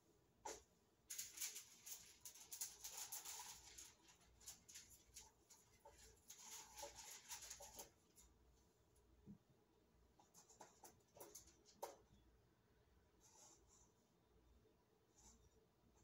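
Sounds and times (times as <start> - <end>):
plastic cups rustling and clicking: 0.5 - 8.2.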